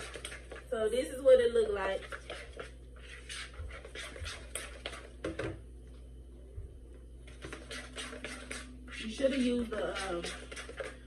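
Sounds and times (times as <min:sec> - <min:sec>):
utensil scraping mixing bowl: 0:00.0 - 0:00.8, 0:01.4 - 0:05.6, 0:07.3 - 0:11.0.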